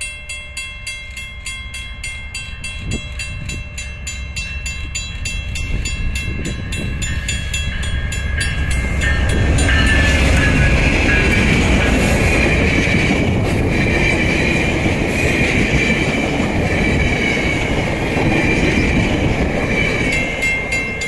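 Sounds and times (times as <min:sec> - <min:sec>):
level crossing bell ringing: 0:00.0 - 0:11.9, 0:20.1 - 0:21.0
locomotive engine and wheel rumble: 0:00.4 - 0:21.0.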